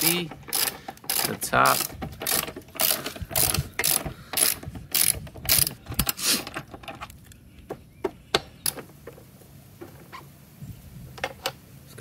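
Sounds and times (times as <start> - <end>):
hand ratchet clicking: 0.0 - 6.7.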